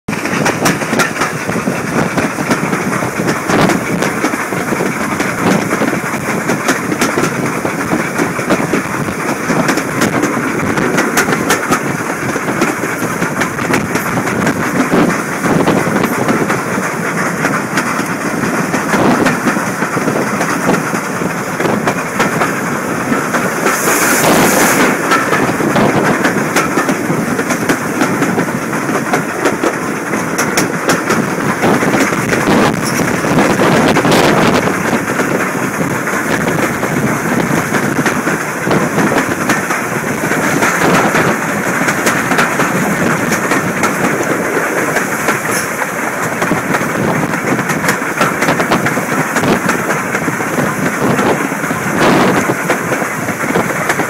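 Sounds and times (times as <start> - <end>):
train running noise and wind: 0.1 - 54.0
wheels clacking over rail joints: 0.1 - 54.0
steam hiss: 22.0 - 27.9.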